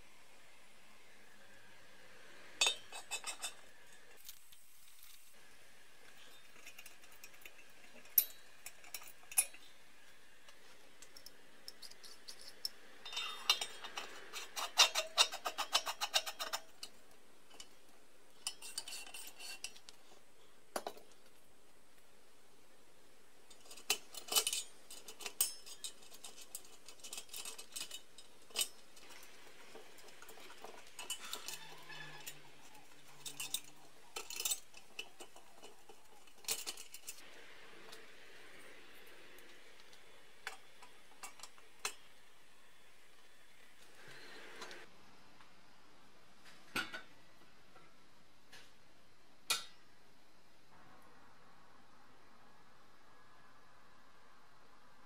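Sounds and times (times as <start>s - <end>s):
brass parts clinking and scraping: 23.7s - 37.2s.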